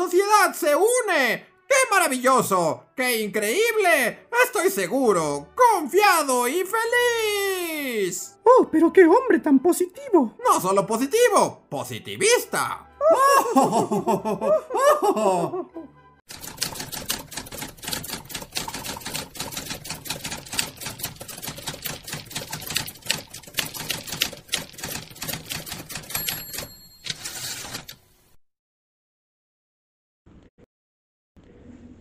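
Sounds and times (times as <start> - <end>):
typewriter bell ringing: 16.3 - 28.0
typewriter typing: 16.3 - 28.0.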